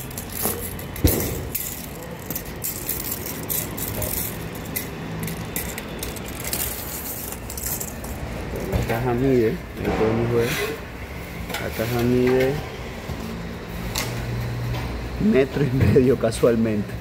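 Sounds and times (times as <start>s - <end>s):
tape measure blade rattling: 0.0s - 8.2s
handling and rustling: 0.0s - 9.3s.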